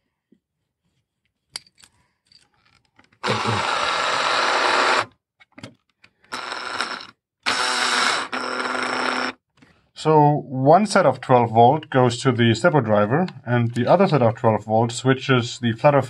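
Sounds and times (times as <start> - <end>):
cordless drill driving screws: 3.2 - 5.1, 6.3 - 9.4.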